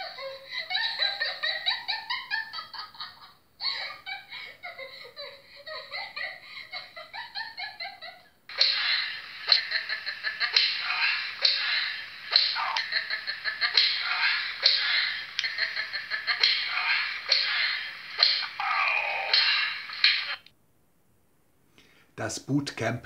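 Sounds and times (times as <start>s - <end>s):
high-pitched laughing: 0.0s - 20.5s
sharp cracks: 10.5s - 13.0s, 13.7s - 15.6s, 16.3s - 20.5s.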